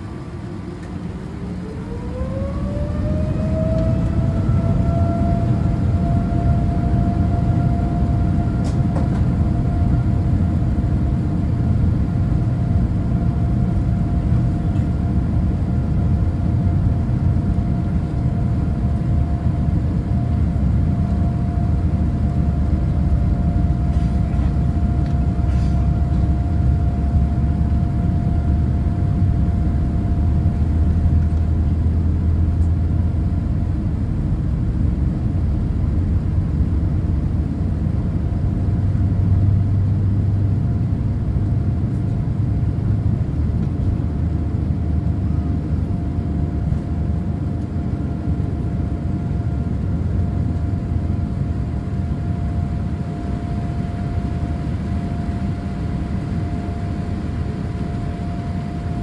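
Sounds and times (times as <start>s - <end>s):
jet engines rumbling: 0.0s - 59.0s
thin steady whine: 44.6s - 59.0s.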